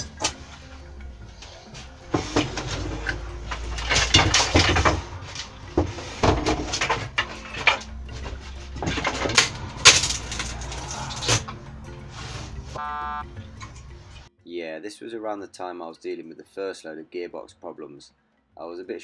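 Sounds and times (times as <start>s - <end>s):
knocks and clatter of timber: 1.7s - 11.6s.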